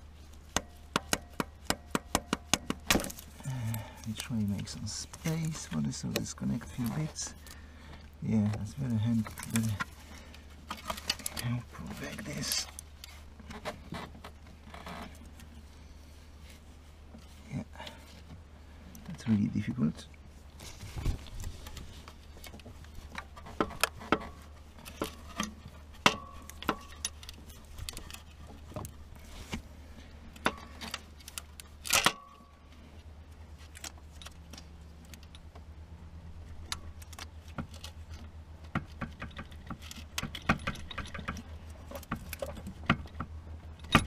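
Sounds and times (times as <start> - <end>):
steady low hum: 0.0 - 44.0
tools and metal parts clinking: 23.1 - 28.9, 38.9 - 44.0.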